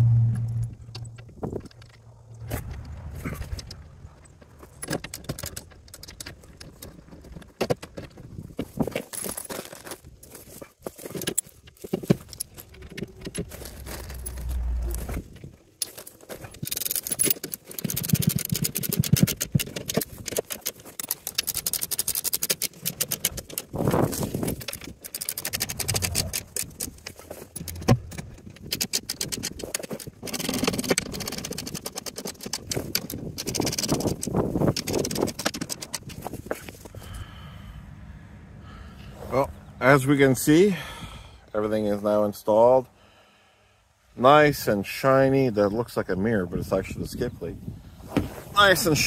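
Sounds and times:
metal hardware rattling and scraping: 0.4 - 36.9
ratchet wrench clicking: 16.6 - 23.7, 28.6 - 36.0.

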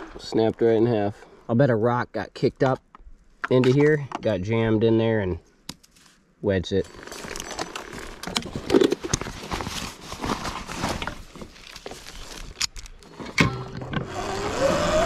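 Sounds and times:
motor whining: 13.5 - 15.0.

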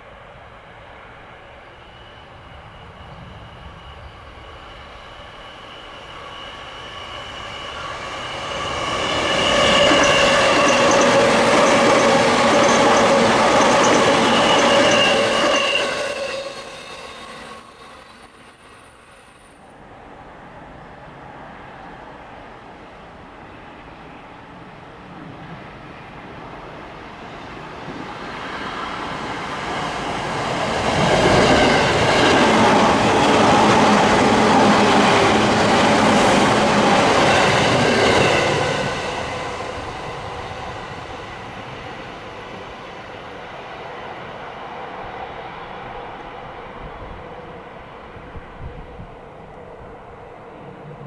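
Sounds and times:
wheels rumbling on rail: 0.0 - 23.0, 23.8 - 51.0
electric train running past: 0.0 - 51.0
steady whining tones: 1.2 - 19.4.

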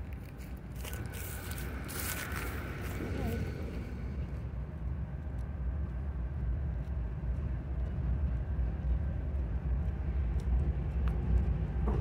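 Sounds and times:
diesel locomotive engine rumbling: 0.0 - 12.0.

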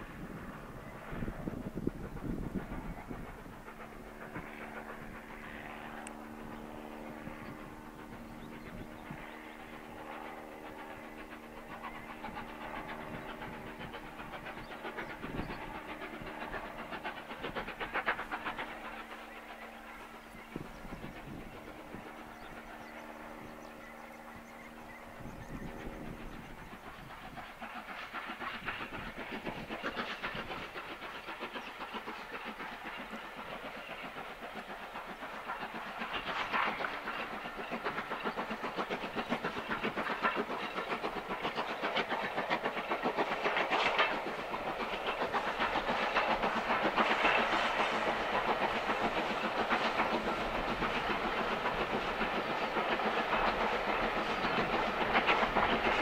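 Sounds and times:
steam locomotive exhaust beats: 0.0 - 56.0
carriages clattering on rails: 24.4 - 56.0.

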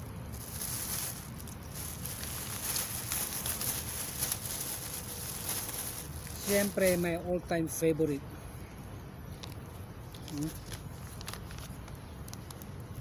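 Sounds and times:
low background rumble: 0.0 - 6.8
plastic bag and paper rustling: 0.0 - 7.4, 9.3 - 13.0.

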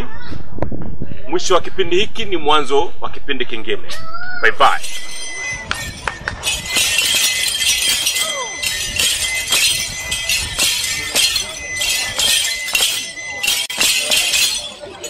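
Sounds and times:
rattles shaken rhythmically: 4.7 - 15.0.

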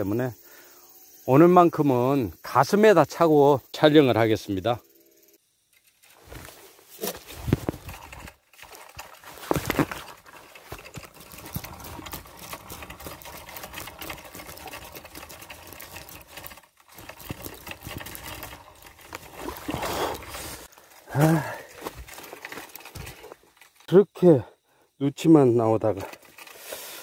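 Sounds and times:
handling fishing gear clicking and rustling: 5.8 - 23.9, 25.9 - 27.0.

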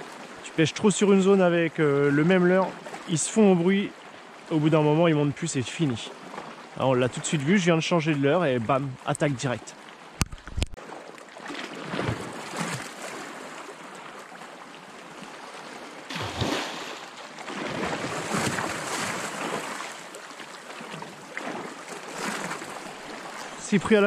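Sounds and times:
water lapping: 0.0 - 24.0
fish thrashing at surface: 16.1 - 19.1
fish striking with splash: 16.1 - 19.6.

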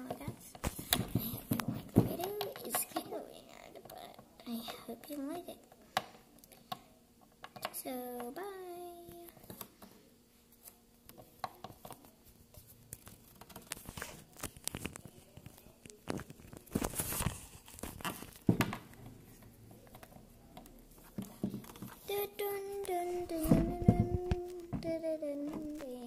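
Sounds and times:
handling noise on microphone: 11.7 - 19.5, 20.9 - 26.0.

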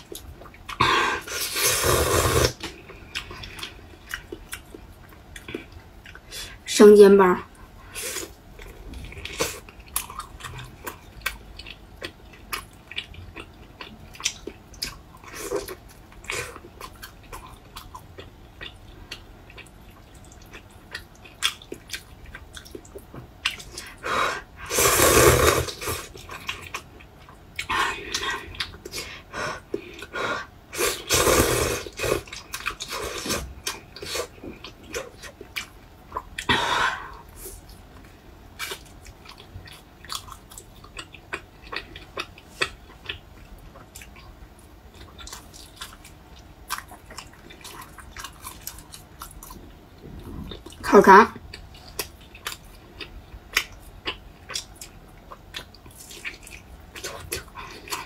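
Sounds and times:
slurping noodles: 0.8 - 2.7, 24.3 - 26.1, 30.7 - 34.3
wet chewing and lip smacks: 8.6 - 24.0, 37.6 - 49.7, 51.5 - 58.0.

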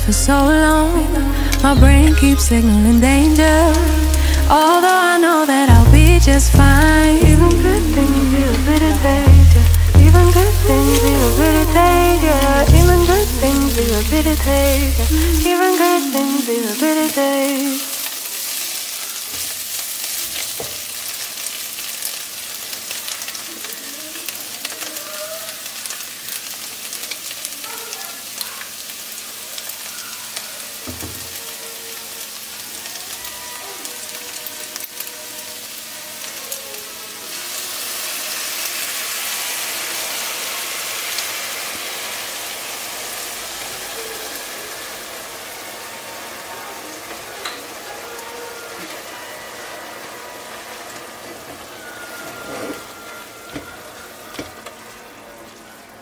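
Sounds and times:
meat sizzling in a pot: 0.5 - 56.0.

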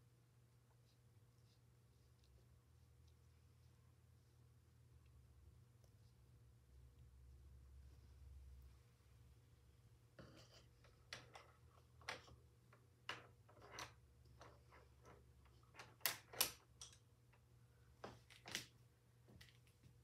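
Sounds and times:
low steady hum: 0.0 - 20.0
faint clicks and knocks: 10.2 - 20.0.

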